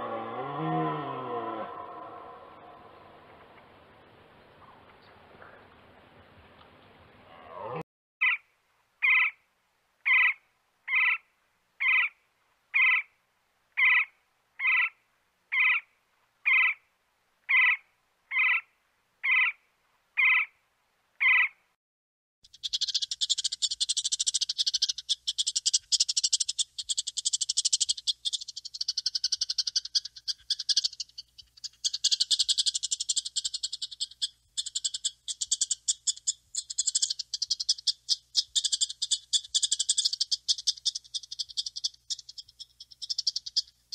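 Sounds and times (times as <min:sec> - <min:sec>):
woodpecker calls: 0:08.2 - 0:09.4, 0:10.0 - 0:13.1, 0:13.8 - 0:16.8, 0:17.5 - 0:19.6, 0:20.2 - 0:20.5, 0:21.2 - 0:21.6, 0:22.4 - 0:43.9.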